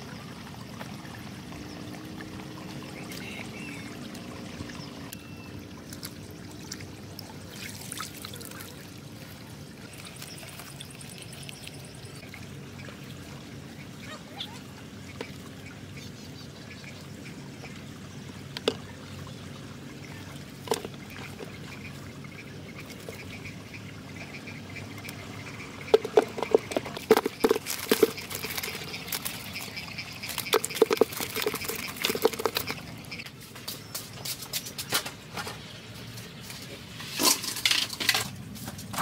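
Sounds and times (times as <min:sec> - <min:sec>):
water trickling and dripping: 0:00.0 - 0:34.5.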